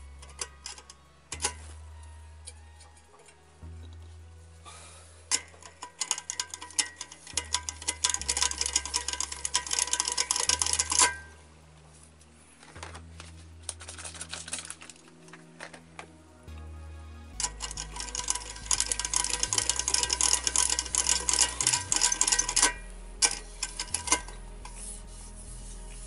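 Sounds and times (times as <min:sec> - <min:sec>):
rapid clicking and scraping: 0:00.0 - 0:01.8, 0:05.3 - 0:11.4, 0:12.6 - 0:16.1, 0:17.4 - 0:26.0.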